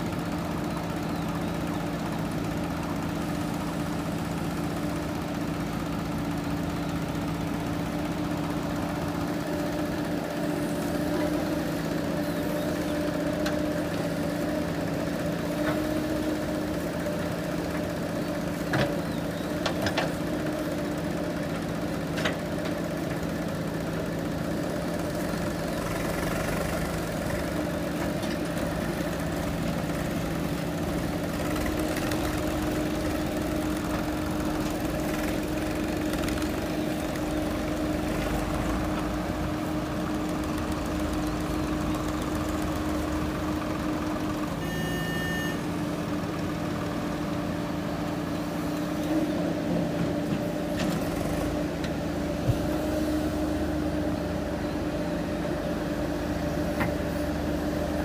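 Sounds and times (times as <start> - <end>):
diesel engine running: 0.0 - 58.0
brief beep: 44.6 - 45.6.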